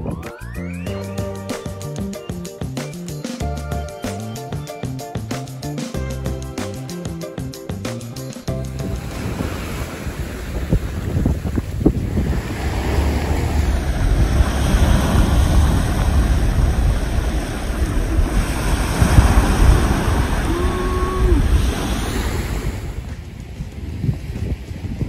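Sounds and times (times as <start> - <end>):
wind buffeting microphone: 8.5 - 25.0
surf on pebbly shore: 8.7 - 25.0.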